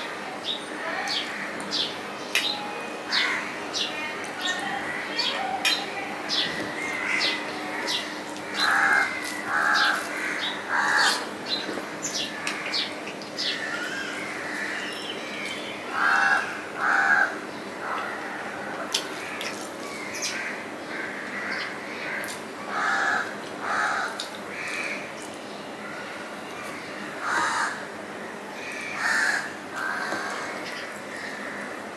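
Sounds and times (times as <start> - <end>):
crows cawing: 6.6 - 11.3, 12.3 - 15.1, 15.9 - 25.1, 25.8 - 31.8.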